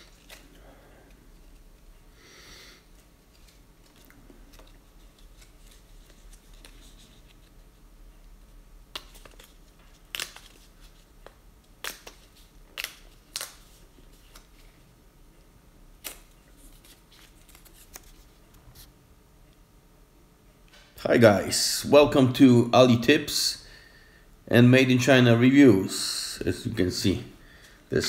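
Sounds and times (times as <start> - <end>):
paper rustling: 3.0 - 7.8, 16.0 - 18.9
sharp paper clicks and snaps: 8.9 - 14.6, 16.0 - 18.2.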